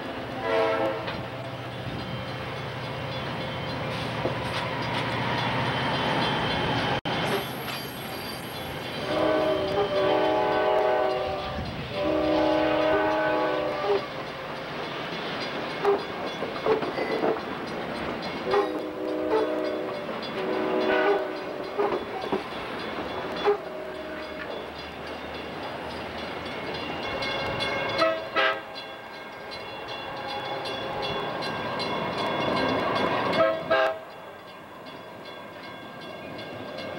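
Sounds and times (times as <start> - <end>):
train cars rolling past: 0.0 - 36.9
locomotive air horn: 0.4 - 1.2, 9.0 - 14.1, 18.4 - 21.9, 23.4 - 24.4, 27.8 - 28.7, 33.3 - 34.1.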